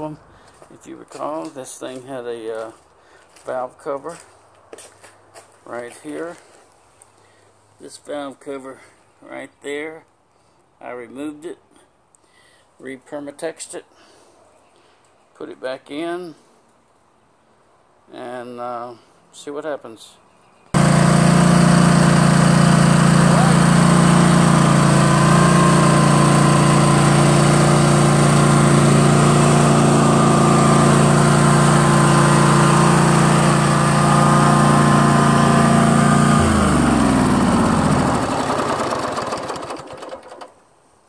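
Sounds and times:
mower engine running and winding down: 0:20.8 - 0:40.6.

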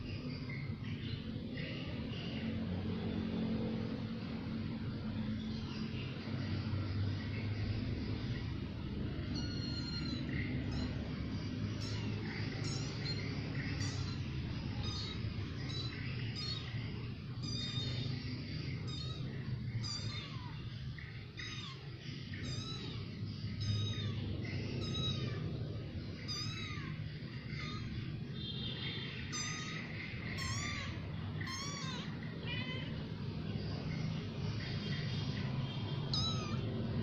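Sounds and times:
steady low hum: 0:00.0 - 0:37.0
kittens mewing: 0:07.3 - 0:28.4, 0:29.0 - 0:37.0.

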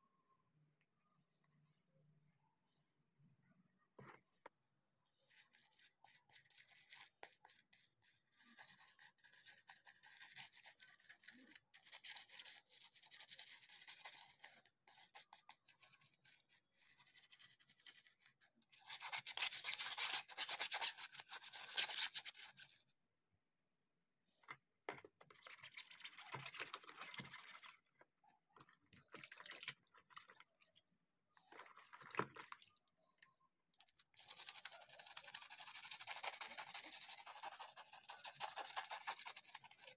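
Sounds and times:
toothbrush scrubbing plastic: 0:05.2 - 0:22.7, 0:33.8 - 0:39.9.

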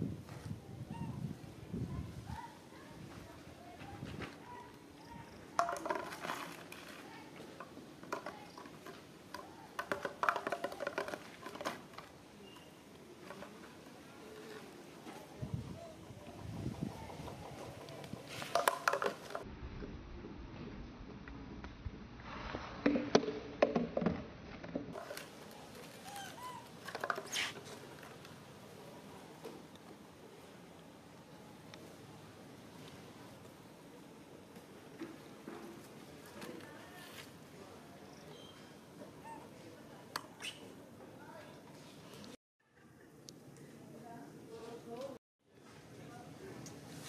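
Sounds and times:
plastic bottle clattering on concrete: 0:05.6 - 0:07.0, 0:07.6 - 0:12.2, 0:18.4 - 0:19.4, 0:26.7 - 0:28.2
faint short squeaks: 0:38.2 - 0:39.6.

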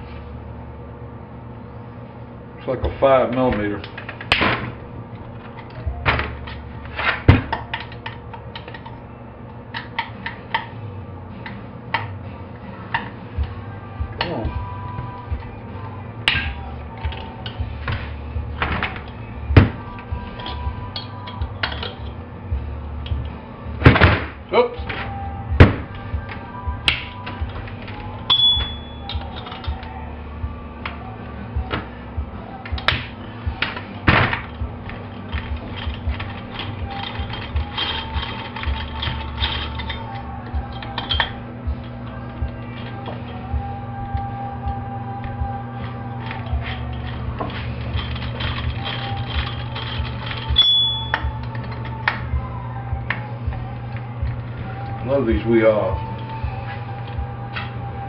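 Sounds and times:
short metallic ring: 0:28.3 - 0:29.2, 0:50.6 - 0:51.2.

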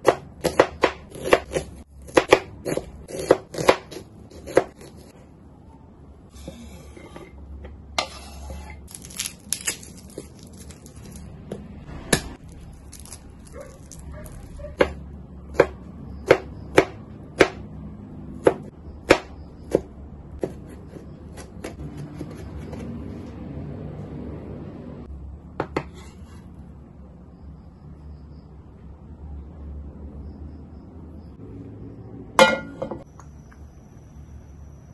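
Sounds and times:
knife chopping on wooden board: 0:00.0 - 0:05.0, 0:14.2 - 0:17.6, 0:18.4 - 0:22.9
knife scraping cutting board: 0:08.0 - 0:09.0, 0:25.8 - 0:26.5.

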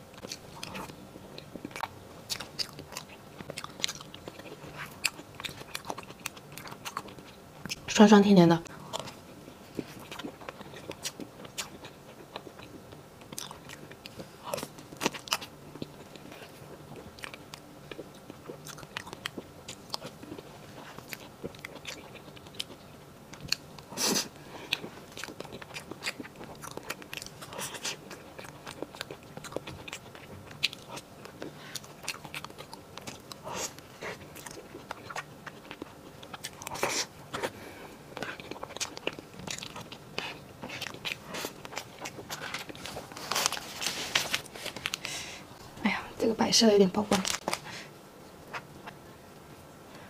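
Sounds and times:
person chewing and mouth smacking: 0:00.1 - 0:07.9, 0:08.7 - 0:45.2.

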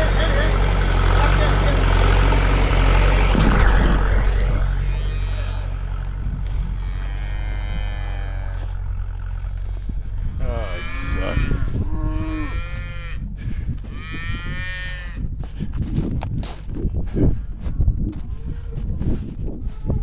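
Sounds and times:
low engine hum: 0:00.0 - 0:19.3
cattle mooing: 0:02.0 - 0:13.2, 0:13.9 - 0:15.2.

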